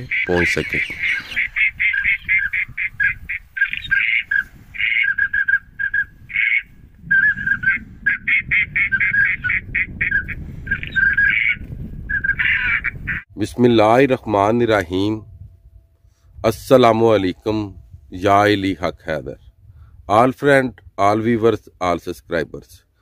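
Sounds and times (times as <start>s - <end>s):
flock of waterfowl calling: 0.0s - 13.2s.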